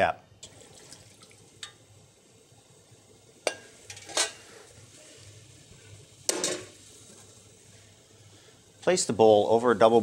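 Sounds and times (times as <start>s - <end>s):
metal kitchenware tapping steel bowl: 3.5s - 4.3s.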